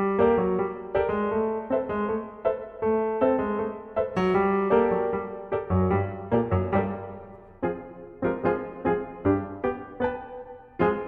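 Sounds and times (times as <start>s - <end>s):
solo piano piece: 0.0s - 11.0s.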